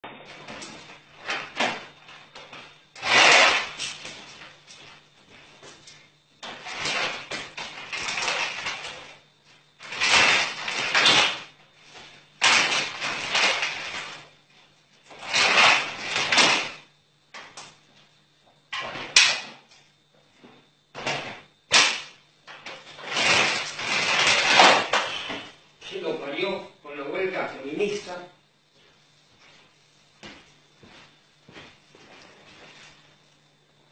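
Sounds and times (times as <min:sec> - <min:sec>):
vacuum cleaner cord pulled rasping: 0:00.2 - 0:04.9, 0:06.4 - 0:11.6, 0:12.4 - 0:14.3, 0:15.1 - 0:16.8, 0:21.0 - 0:25.5.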